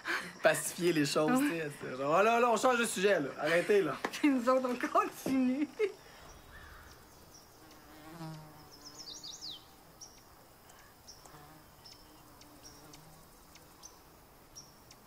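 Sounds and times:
insect buzzing: 4.4 - 15.0
bird chirps: 5.8 - 15.0.

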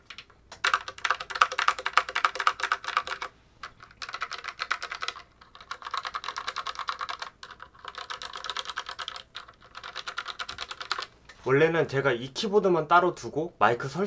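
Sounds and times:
mechanical keyboard typing: 0.1 - 11.1.

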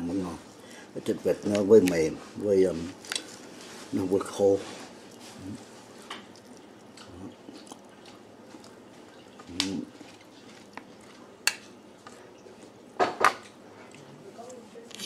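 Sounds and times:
chewing: 5.0 - 12.8.

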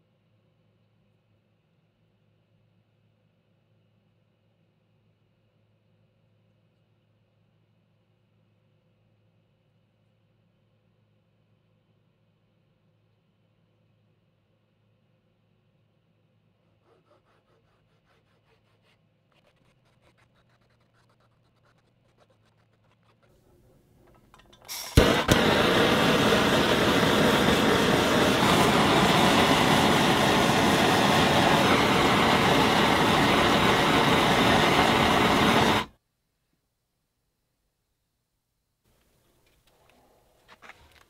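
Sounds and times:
marker scratching on wood: 16.8 - 23.4
gas torch hissing: 24.6 - 35.9
torch igniting crack: 24.7 - 35.9.

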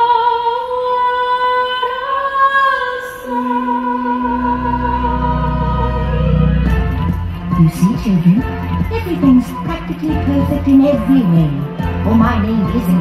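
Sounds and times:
woman singing long notes: 0.0 - 6.8.

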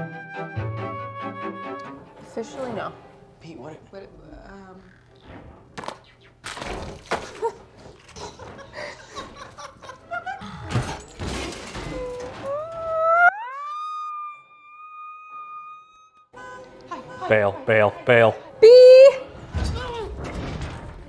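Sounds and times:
rising held tone: 12.5 - 16.3.

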